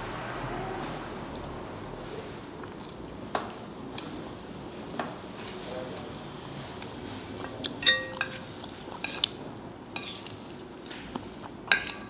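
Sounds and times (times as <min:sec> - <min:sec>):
fork clinking against glass bowl: 0:07.8 - 0:09.3.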